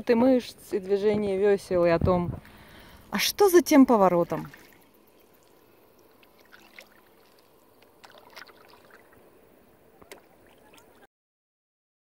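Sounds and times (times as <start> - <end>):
soft paddle splashes and drips: 4.1 - 9.4, 10.0 - 11.1.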